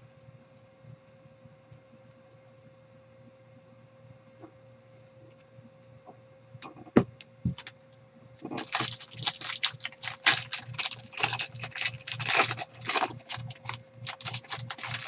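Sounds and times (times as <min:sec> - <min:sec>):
card pack wrapper tearing: 0:08.5 - 0:15.0.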